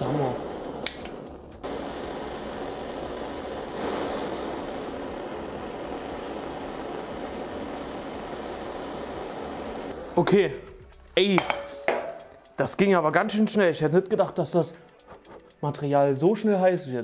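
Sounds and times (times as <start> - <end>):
gas torch flame hissing: 0.0 - 10.6.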